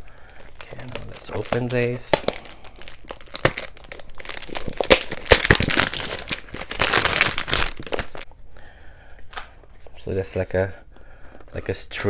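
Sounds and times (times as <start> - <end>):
cellophane crinkling and tearing: 0.0 - 8.3.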